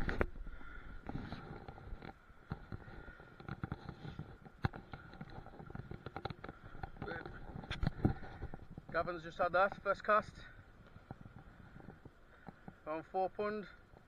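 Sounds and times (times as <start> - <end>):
stones clicking underfoot: 0.0 - 12.8.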